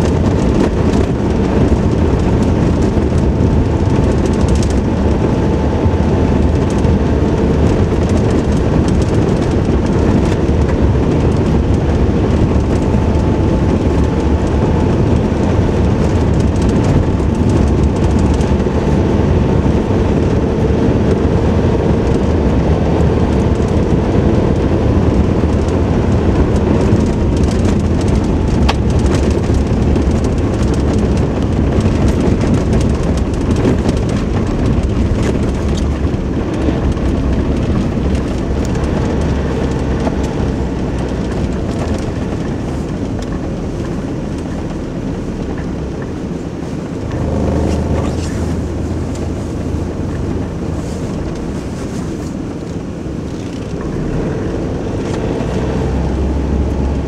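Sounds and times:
engine drone: 0:00.0 - 0:57.0
tyre and road rumble: 0:00.0 - 0:57.0.

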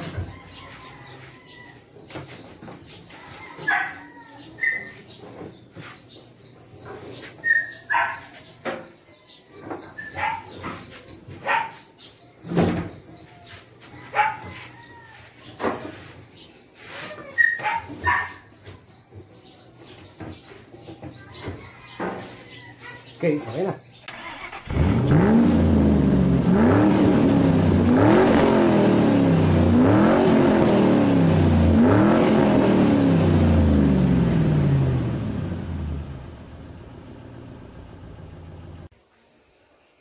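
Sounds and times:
dog barking: 0:03.6 - 0:04.0, 0:07.5 - 0:08.4, 0:10.0 - 0:10.6, 0:11.4 - 0:11.9, 0:14.1 - 0:14.5, 0:17.4 - 0:18.5.

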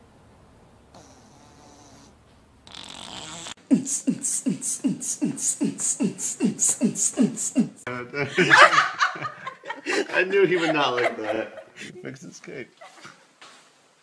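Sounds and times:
buzzy fart-like toots: 0:01.0 - 0:03.6.

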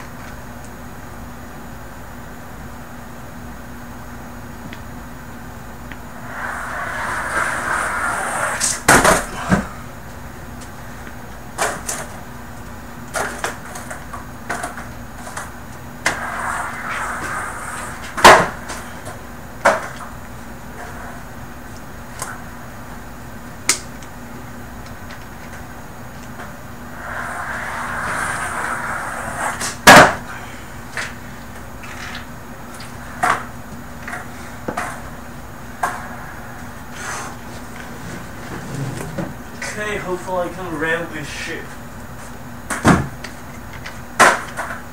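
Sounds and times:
skateboard wheels rolling on carpet: 0:02.6 - 0:40.4
skateboard clacking on floor: 0:13.1 - 0:20.1, 0:44.2 - 0:44.8.

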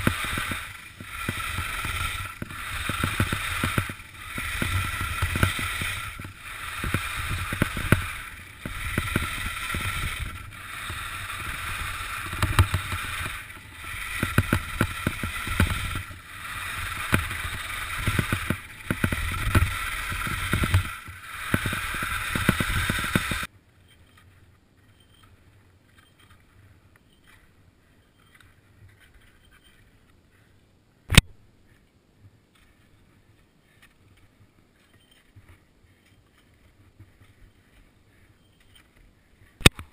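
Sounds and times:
skis scraping over snow: 0:00.0 - 0:23.5
sharp click: 0:31.1 - 0:31.3, 0:39.6 - 0:39.9.

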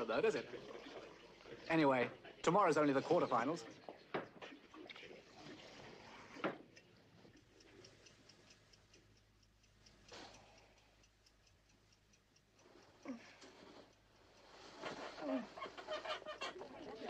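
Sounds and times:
alarm clock ticking: 0:06.7 - 0:16.8.

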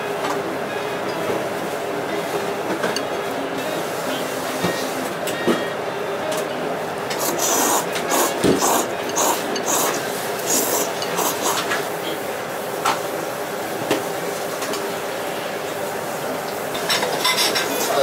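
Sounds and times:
restaurant background noise: 0:00.0 - 0:18.0
person slurping noodles: 0:07.2 - 0:11.7.

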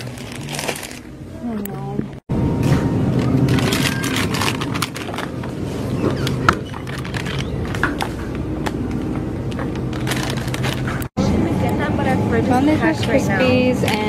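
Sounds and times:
plastic bag crinkling: 0:00.0 - 0:01.2, 0:03.2 - 0:08.1, 0:09.6 - 0:11.1.

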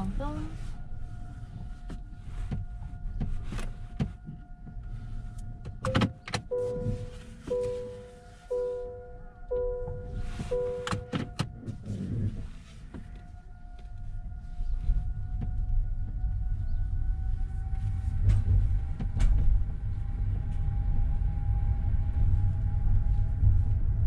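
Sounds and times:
faint steady whine: 0:00.0 - 0:18.8
engine and tyres rumbling: 0:00.0 - 0:24.0
electronic chime beep: 0:06.5 - 0:11.1.

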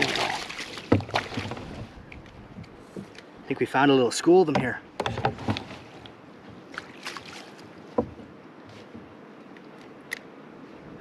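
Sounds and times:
knocks and taps in a kayak: 0:00.7 - 0:03.2, 0:04.4 - 0:06.2, 0:07.9 - 0:09.1.

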